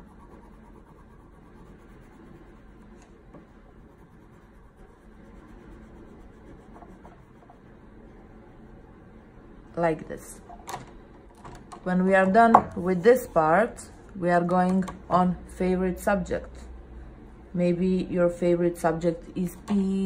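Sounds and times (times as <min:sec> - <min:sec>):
pencil scratching on paper: 0:00.0 - 0:07.7.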